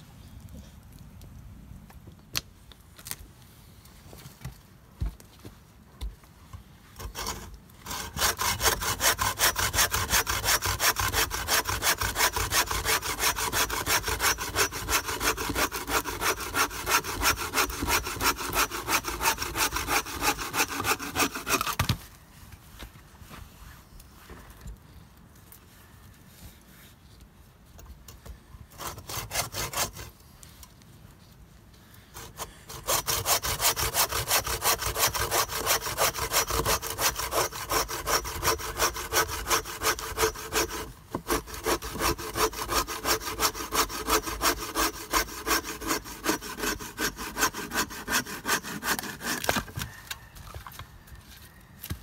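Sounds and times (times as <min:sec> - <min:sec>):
hand saw cutting log: 0:07.0 - 0:22.0, 0:28.7 - 0:30.1, 0:32.2 - 0:50.0.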